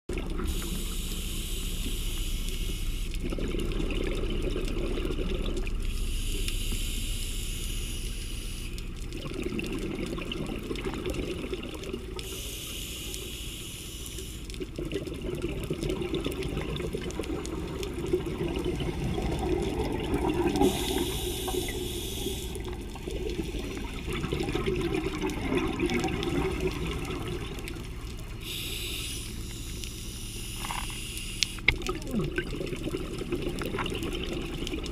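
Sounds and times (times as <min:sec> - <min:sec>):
exhaled bubbling underwater: 0:00.1 - 0:07.0, 0:08.0 - 0:13.4, 0:14.0 - 0:34.9
regulator hiss on inhalation: 0:00.5 - 0:03.1, 0:05.9 - 0:08.8, 0:12.2 - 0:14.5, 0:20.6 - 0:22.7, 0:28.4 - 0:31.7.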